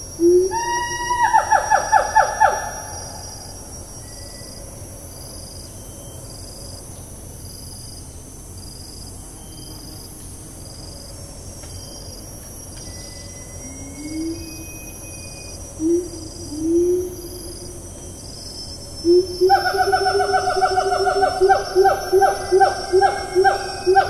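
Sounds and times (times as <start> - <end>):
insect chorus high whine: 0.0 - 24.0
ape loud call with pulsed notes: 13.2 - 24.0
low rising hoot: 15.8 - 17.8, 19.0 - 24.0.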